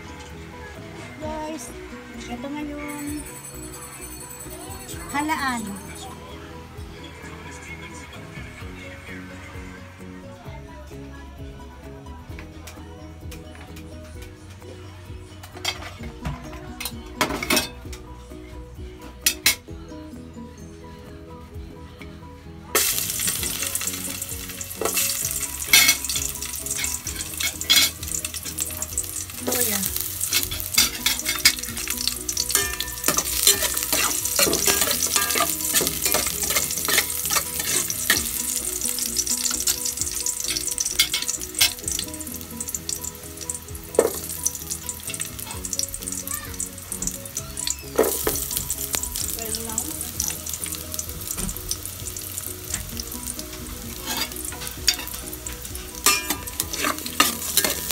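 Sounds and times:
ginger sizzling in hot oil: 0:22.8 - 0:57.9
spoon scraping a pot: 0:29.9 - 0:38.3, 0:54.0 - 0:55.2, 0:56.0 - 0:57.9.

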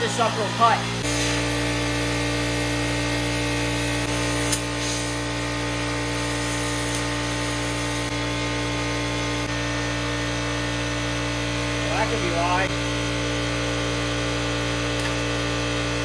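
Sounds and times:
steady machine hum: 0:00.0 - 0:16.0
compressed air hissing: 0:01.0 - 0:09.5.

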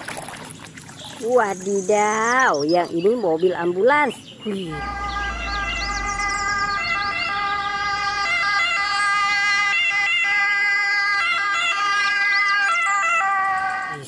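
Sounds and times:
ambulance siren: 0:04.6 - 0:14.0.

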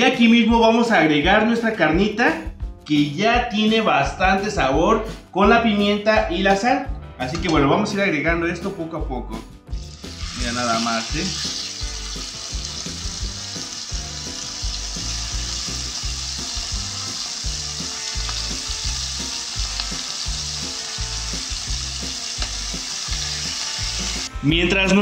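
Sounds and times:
meat sizzling in hot oil: 0:09.7 - 0:24.4.

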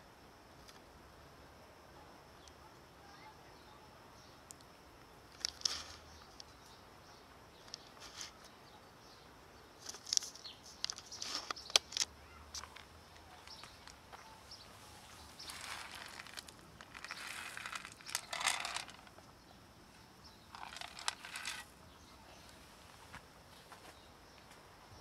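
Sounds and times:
sharp clicks and crinkles: 0:05.3 - 0:06.6, 0:07.6 - 0:08.5, 0:09.8 - 0:14.0, 0:15.4 - 0:19.3, 0:20.5 - 0:21.7
rustling and crackling: 0:05.3 - 0:06.8, 0:07.6 - 0:08.6, 0:09.8 - 0:24.7.

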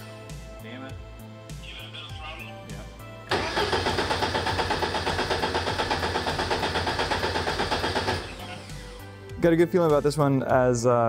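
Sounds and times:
engine cranking on starter: 0:03.3 - 0:08.7.

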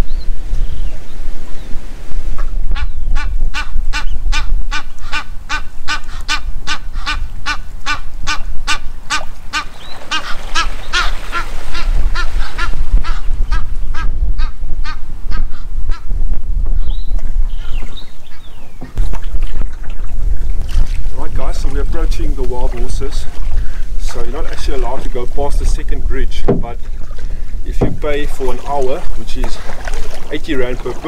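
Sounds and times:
wind rumbling on microphone: 0:00.0 - 0:31.0
waterbird honking: 0:02.4 - 0:16.1, 0:17.5 - 0:20.1.

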